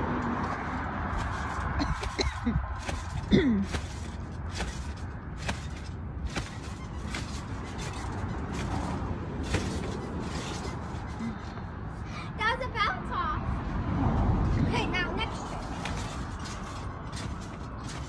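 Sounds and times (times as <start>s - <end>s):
trampoline springs knocking and creaking: 0.0s - 12.1s, 14.5s - 18.0s.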